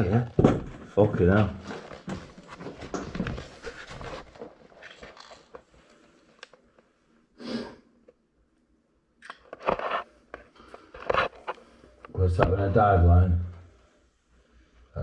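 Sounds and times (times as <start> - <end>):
clothing and gear rustling: 1.6 - 6.3
close breathing: 7.3 - 8.0
sharp breath out or sniff: 7.4 - 7.9.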